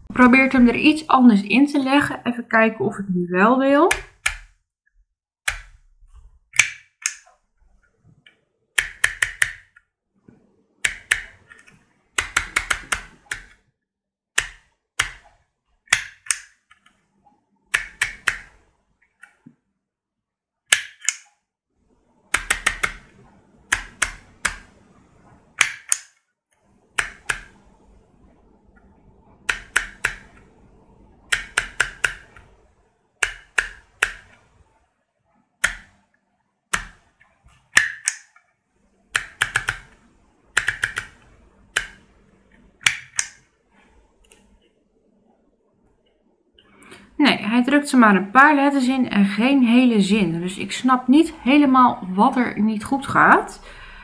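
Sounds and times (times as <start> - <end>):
label maker clicks and snaps: 20.7 - 21.3, 25.6 - 26.2, 37.7 - 38.4, 42.8 - 43.4.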